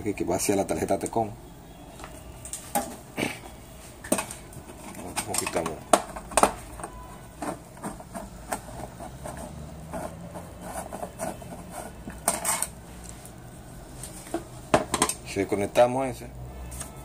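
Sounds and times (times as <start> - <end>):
hands handling connector and wiring: 1.9 - 13.4.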